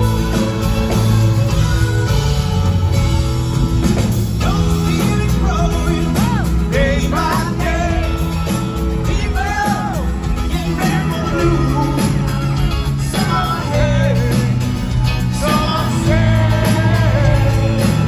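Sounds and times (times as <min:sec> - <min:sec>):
pop-rock band playing: 0:00.0 - 0:18.0
man singing: 0:04.4 - 0:18.0.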